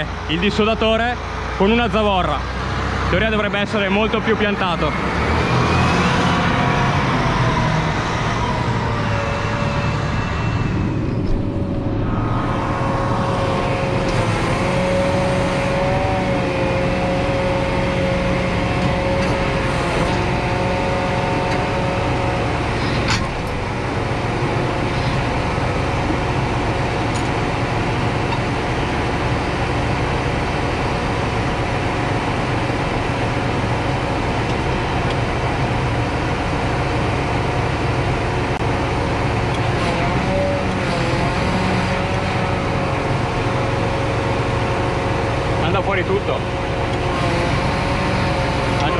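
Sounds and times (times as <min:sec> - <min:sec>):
diesel engine idling: 0:00.0 - 0:48.9
high whine: 0:03.1 - 0:37.8.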